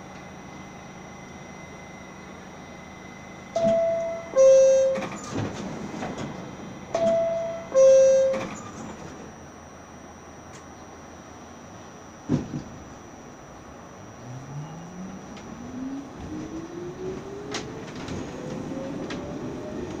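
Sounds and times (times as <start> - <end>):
train humming: 0.0 - 20.0
two-note door chime: 3.6 - 5.0, 7.0 - 8.4.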